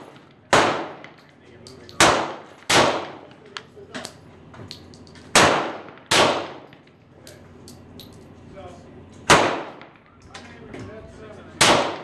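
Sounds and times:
pistol shots with echo: 0.0s - 3.3s, 5.3s - 6.8s, 9.3s - 10.2s, 11.6s - 12.0s.

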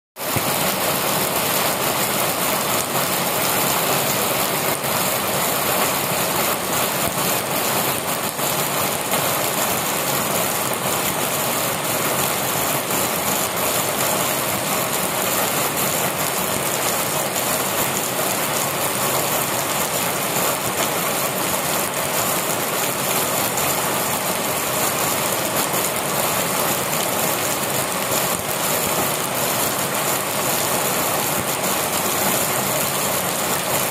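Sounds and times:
heavy rain on concrete and plants: 0.2s - 33.9s.

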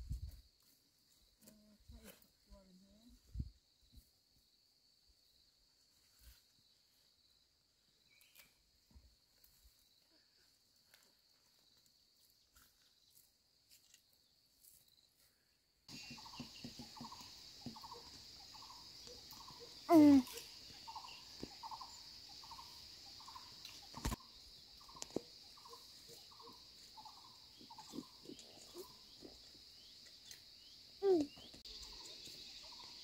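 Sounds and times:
insect chirps: 0.0s - 33.0s
high insect drone: 15.9s - 33.0s.

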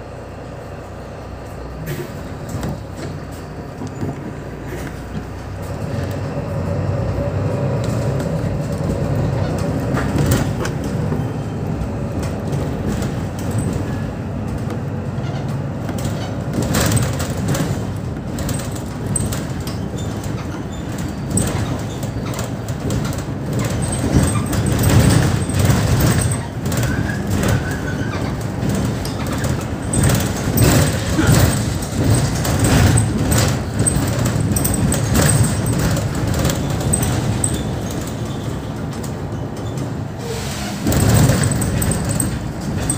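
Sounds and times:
bus engine and road noise: 0.0s - 42.9s
clicks and rattles: 12.1s - 40.0s, 40.9s - 42.9s.

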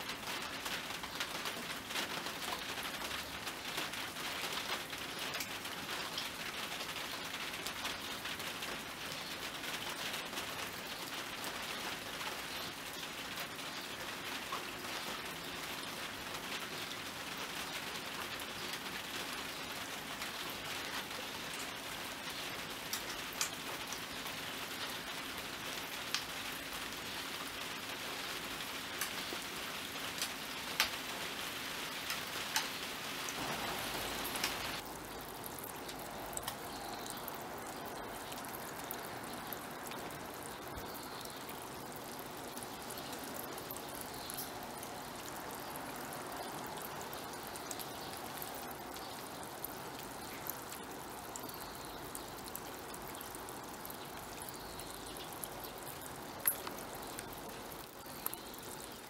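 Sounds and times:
rain pattering on pond: 0.0s - 59.0s
water trickling into stone basin: 31.9s - 59.0s.

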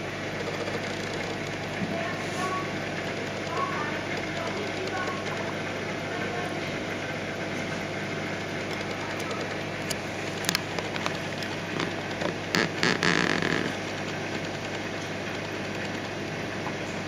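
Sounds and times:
aquarium pump hum and water rush: 0.0s - 17.0s
sharp clicks: 8.6s - 16.2s.

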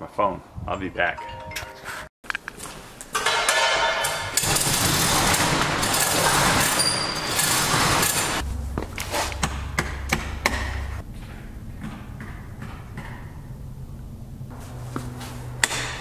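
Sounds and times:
metal clanks: 3.1s - 13.2s
metal door slats rattling: 3.2s - 8.4s
steady low hum: 7.6s - 16.0s.

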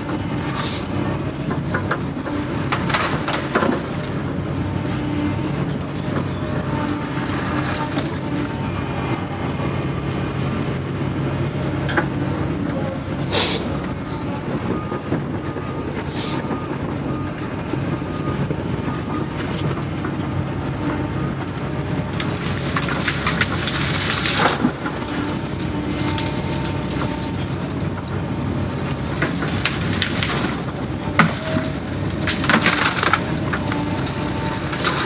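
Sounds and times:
excavator diesel engine running: 0.0s - 35.0s
twigs and branches snapping: 22.2s - 28.1s, 28.9s - 35.0s.

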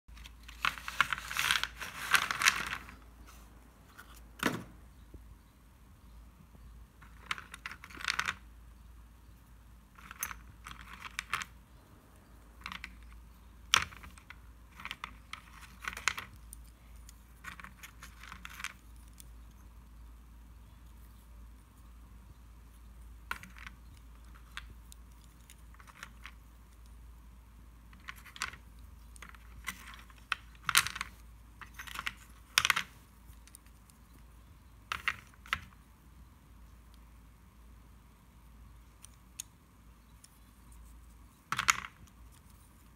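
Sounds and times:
pencils clicking and clattering: 0.1s - 4.6s, 7.0s - 8.5s, 9.9s - 11.7s, 12.3s - 20.1s, 22.8s - 27.0s, 27.8s - 35.8s, 38.8s - 42.9s.

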